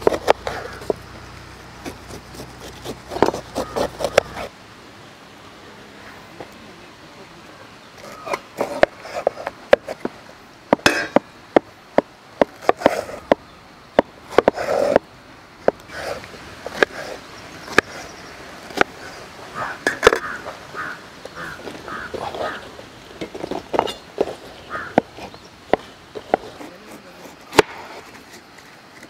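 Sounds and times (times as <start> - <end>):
fruit crunching: 0.0 - 4.5
knife chopping on wooden board: 1.8 - 4.5.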